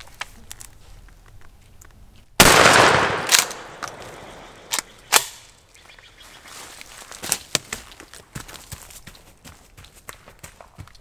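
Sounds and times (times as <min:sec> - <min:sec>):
shotgun blast echoing: 0:02.4 - 0:05.4.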